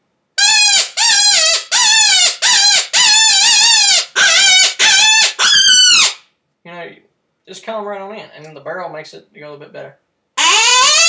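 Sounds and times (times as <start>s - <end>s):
high-pitched predator call whines: 0.4s - 6.2s, 10.4s - 11.0s.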